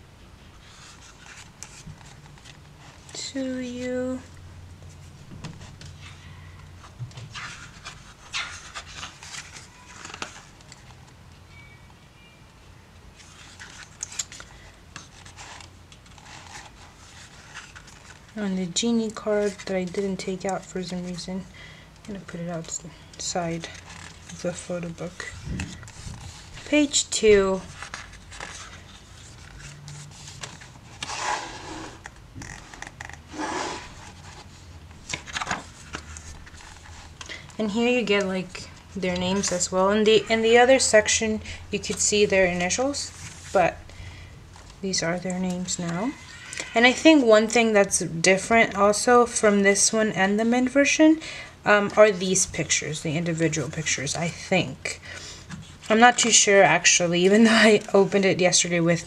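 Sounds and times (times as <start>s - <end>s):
low steady hum: 0.0s - 59.0s
paper pages rustling: 0.5s - 11.2s, 13.1s - 21.2s, 22.1s - 41.2s, 41.8s - 43.8s.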